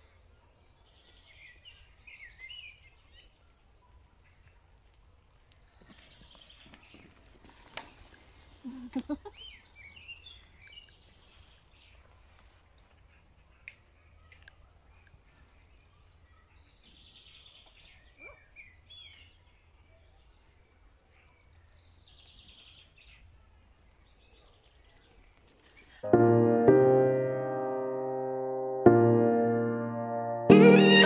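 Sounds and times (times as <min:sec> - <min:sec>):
songbirds chirping and whistling: 0:00.0 - 0:08.6, 0:09.2 - 0:12.6, 0:13.5 - 0:26.1.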